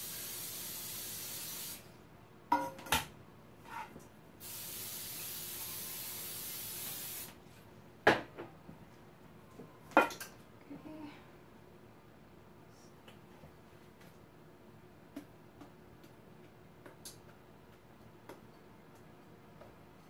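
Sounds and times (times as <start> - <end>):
aerosol spray hissing: 0.0 - 1.8, 4.4 - 7.4.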